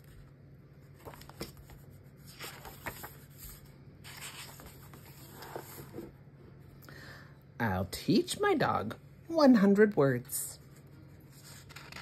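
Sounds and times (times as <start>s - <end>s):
paper rustling: 0.0s - 6.1s, 10.7s - 12.0s
book pages turning: 0.0s - 6.2s, 10.6s - 12.0s.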